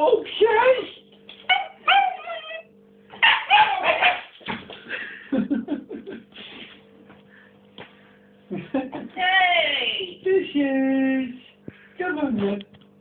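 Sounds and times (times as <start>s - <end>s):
dog barking: 1.5s - 2.5s, 3.2s - 4.4s.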